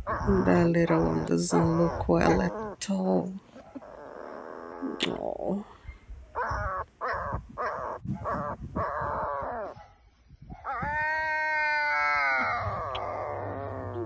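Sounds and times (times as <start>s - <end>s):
puppy crying: 0.0s - 2.8s, 3.6s - 5.0s, 6.4s - 9.8s, 10.6s - 14.0s.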